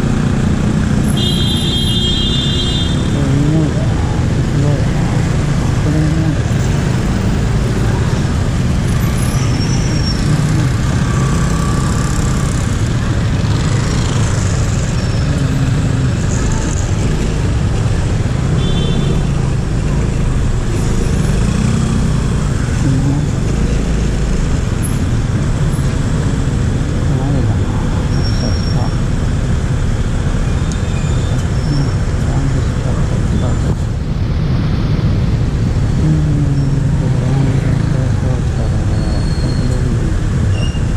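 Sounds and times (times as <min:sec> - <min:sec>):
city traffic rumble: 0:00.0 - 0:40.9
motorcycle engine: 0:00.0 - 0:40.9.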